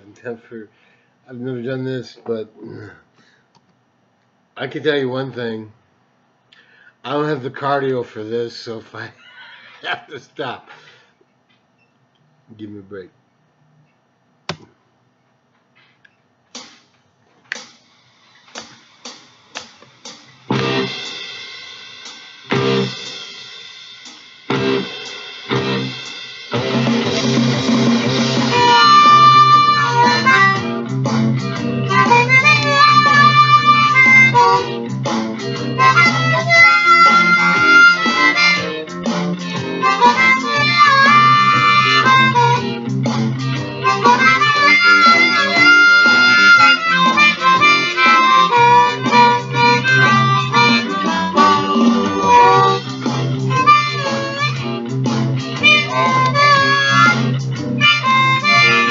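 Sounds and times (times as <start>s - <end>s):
harmonica playing blues: 22.5s - 23.0s, 24.5s - 58.9s.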